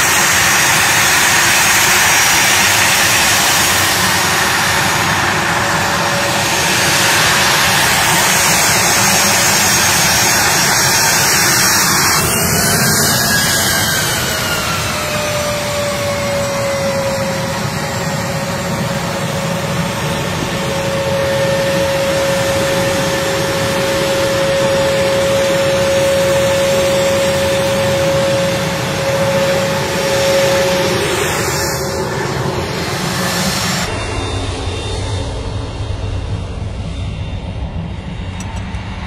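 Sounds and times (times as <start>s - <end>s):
jet engines whining: 0.0s - 39.0s
tone gliding down in pitch: 11.0s - 34.7s.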